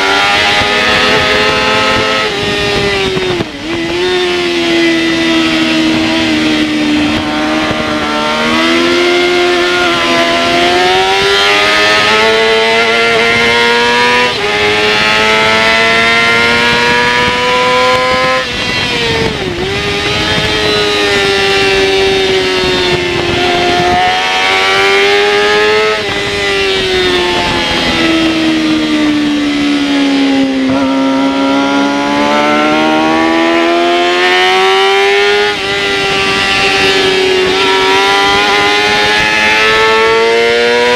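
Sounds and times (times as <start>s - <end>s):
motorcycle engine at high revs: 0.0s - 40.9s
wind rush: 0.0s - 40.9s.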